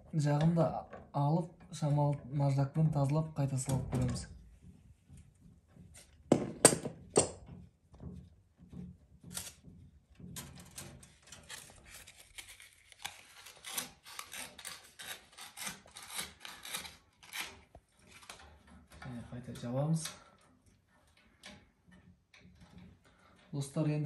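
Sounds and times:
sandpaper rubbing on metal: 13.1s - 17.6s.

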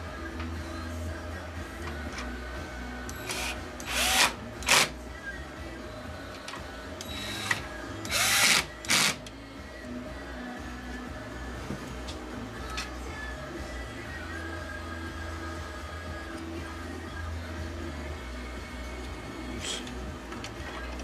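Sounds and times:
cordless drill bursts: 3.2s - 4.9s, 7.0s - 9.2s.

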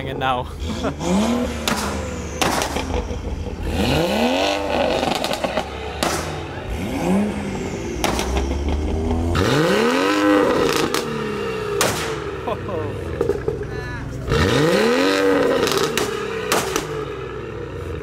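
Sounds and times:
car engines revving hard: 0.0s - 18.0s
exhaust pops and bangs: 1.6s - 3.6s, 4.9s - 6.6s, 8.0s - 9.3s, 11.8s - 12.3s, 13.1s - 13.8s, 15.5s - 17.1s.

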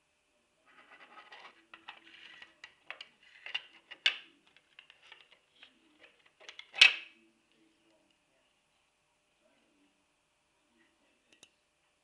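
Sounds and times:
plastic parts clicking and rustling: 1.2s - 7.1s.

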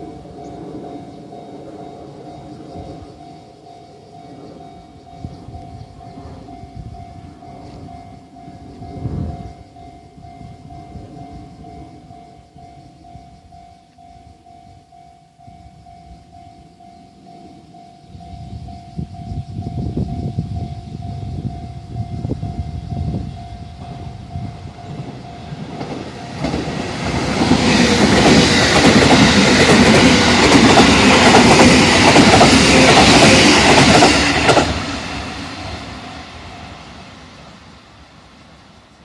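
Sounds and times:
electric train passing: 0.0s - 39.0s
wheels running on rails: 18.8s - 37.8s.

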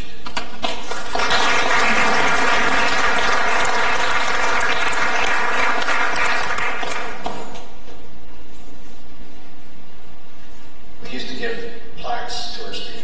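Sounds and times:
audience applauding: 0.8s - 7.6s.

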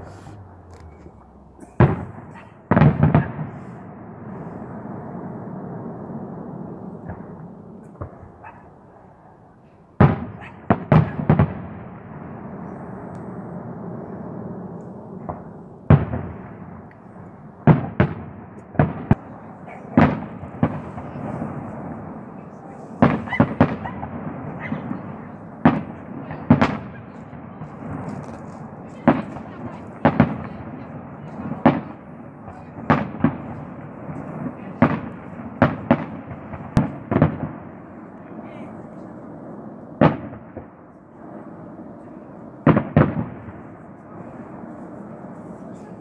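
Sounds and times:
low rumble: 0.0s - 2.6s
firework bangs: 0.0s - 8.7s, 10.0s - 46.0s.

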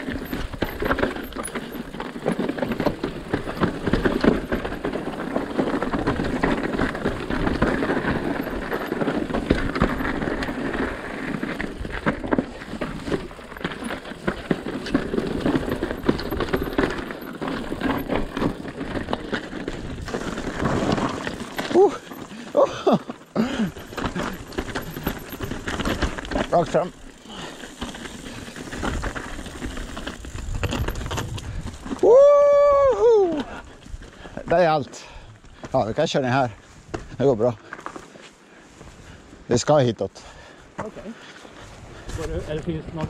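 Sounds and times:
tyres crunching over stones: 0.0s - 32.1s, 33.7s - 38.9s
bike frame and chain rattling: 0.0s - 35.1s.

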